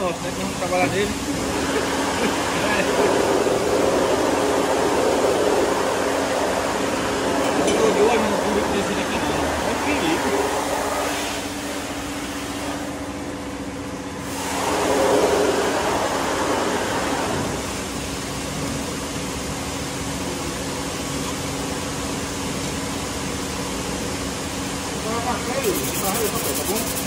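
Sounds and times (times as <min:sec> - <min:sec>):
machinery and fans humming: 0:00.0 - 0:27.0.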